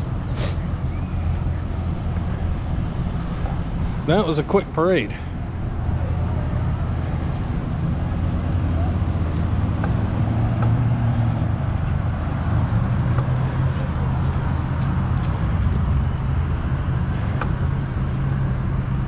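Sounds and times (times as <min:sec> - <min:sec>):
road traffic rumble and hiss: 0:00.0 - 0:19.0.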